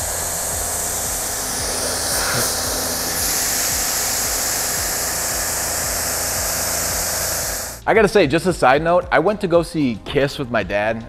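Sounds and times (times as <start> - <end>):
pressure washer spraying car: 0.0 - 7.8.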